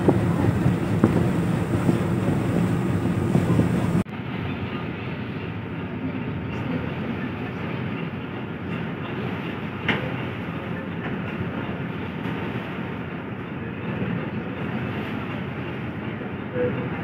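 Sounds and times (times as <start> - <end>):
vehicle rumble on board: 0.0 - 4.1.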